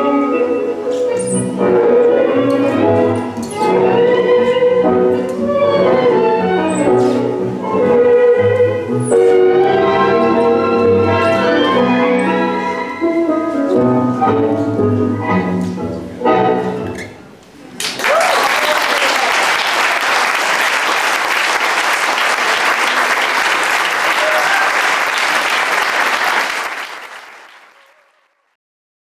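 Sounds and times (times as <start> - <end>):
tango music: 0.0 - 17.4
audience applause: 17.8 - 28.4.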